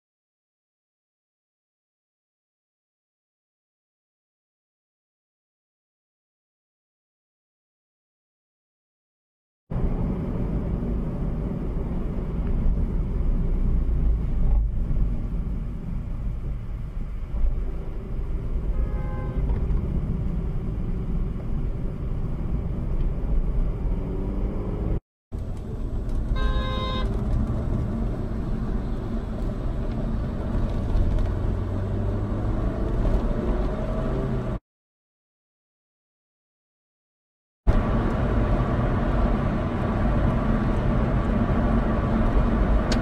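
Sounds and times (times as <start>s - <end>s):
car engine and road rumble: 9.7s - 34.6s, 37.7s - 43.0s
car horn: 18.7s - 19.6s, 26.3s - 27.2s
car engine speeding up: 19.8s - 26.2s, 27.1s - 34.6s.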